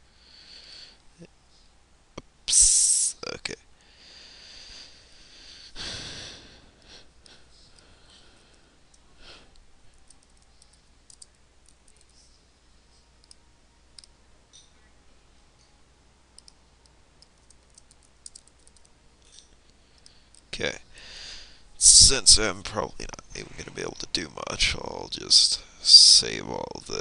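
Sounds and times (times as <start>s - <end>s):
computer keyboard clicks: 10.0s - 12.1s, 17.2s - 18.9s
mouse clicks: 10.0s - 12.2s, 13.2s - 13.4s, 16.4s - 18.9s.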